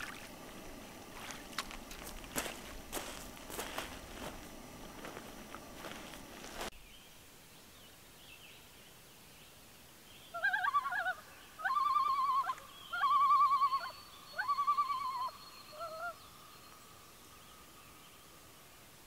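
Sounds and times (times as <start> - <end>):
loon tremolo call: 10.4 - 16.2.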